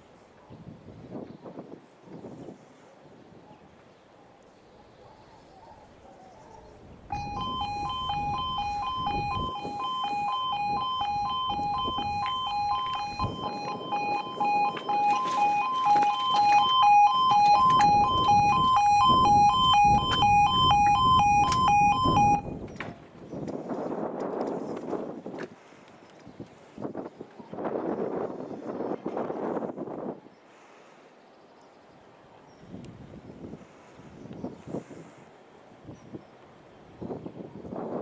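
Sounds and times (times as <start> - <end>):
level crossing alarm warbling: 7.1 - 22.6.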